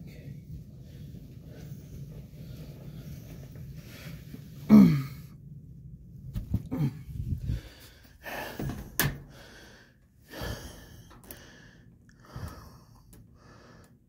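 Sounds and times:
person breathing heavily: 6.6s - 14.0s.

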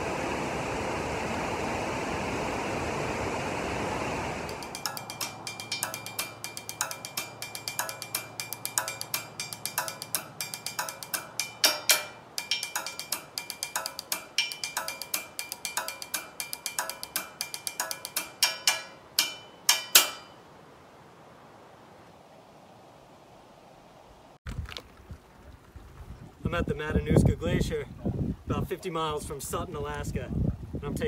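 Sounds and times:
drumsticks striking metal guardrail: 4.5s - 20.4s.

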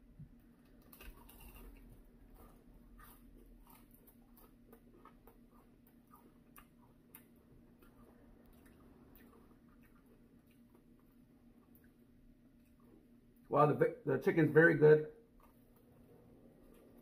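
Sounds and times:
low room hum: 0.0s - 17.0s
chewing crispy food: 0.1s - 13.5s, 15.3s - 17.0s.

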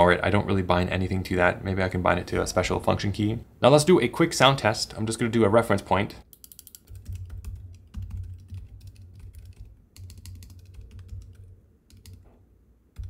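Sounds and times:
fast typing on keyboard: 6.4s - 12.3s.

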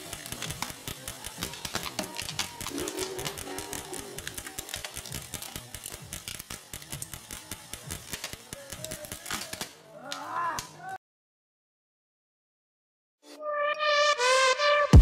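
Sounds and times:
airsoft rifle firing rapidly: 0.0s - 9.8s.

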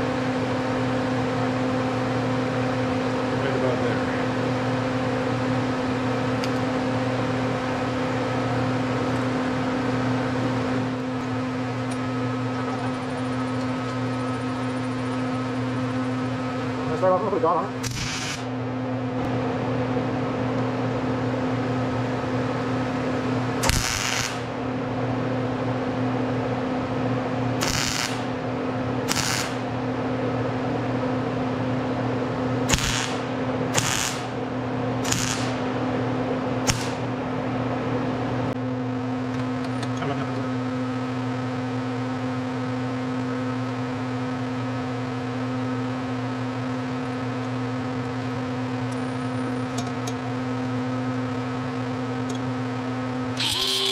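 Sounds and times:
electrical hum: 0.0s - 53.9s
welding arc crackling bursts: 17.9s - 18.5s, 23.6s - 24.5s, 27.6s - 28.4s, 29.1s - 29.6s, 32.7s - 34.4s, 35.0s - 35.7s, 36.6s - 37.1s.

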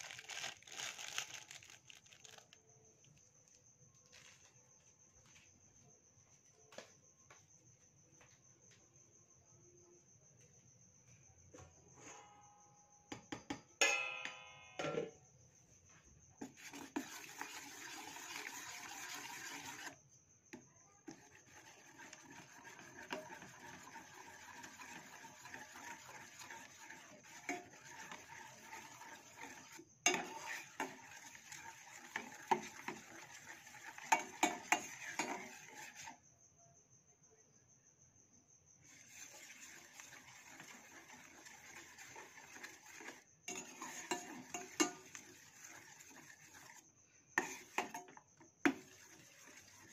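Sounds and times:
ringing metal clang: 13.8s - 15.2s
ladle scraping and clinking in pan: 16.4s - 20.0s, 21.1s - 36.2s, 38.9s - 46.8s, 47.4s - 49.9s.

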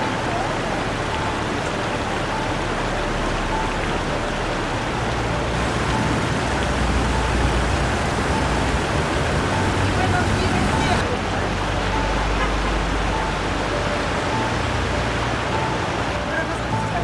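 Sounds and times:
floodwater rushing: 0.0s - 17.0s
low rumble: 0.0s - 17.0s.

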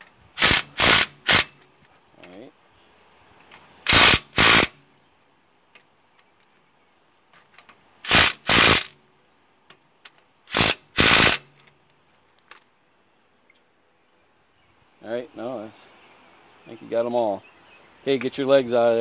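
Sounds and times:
impact driver hammering bursts: 0.4s - 1.6s, 3.9s - 4.8s, 8.1s - 8.9s, 10.5s - 11.6s.

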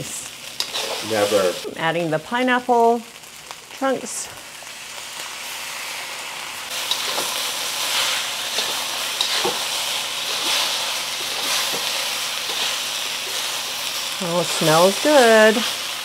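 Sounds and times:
food sizzling in a wok: 0.0s - 16.0s
metal spatula scraping a pan: 6.8s - 13.5s.

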